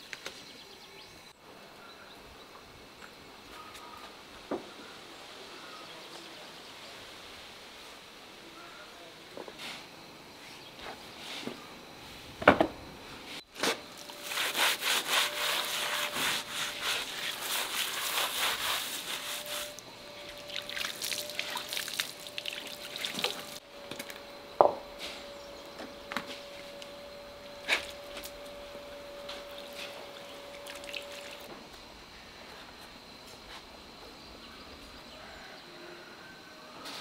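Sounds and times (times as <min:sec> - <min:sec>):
straw scrubbing stone: 0:14.0 - 0:19.8
water splashing: 0:20.3 - 0:23.6, 0:29.6 - 0:31.5.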